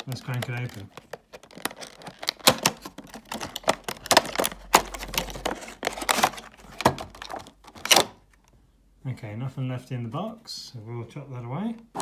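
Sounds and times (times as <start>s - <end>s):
plastic tray clicking and crackling: 0.0s - 8.2s.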